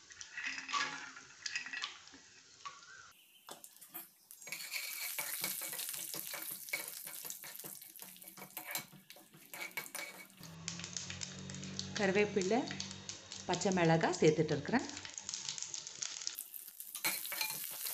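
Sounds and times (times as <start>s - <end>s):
peanuts sizzling in hot oil: 0.0s - 17.9s
metal spatula scraping a pan: 3.5s - 10.5s, 16.9s - 17.9s.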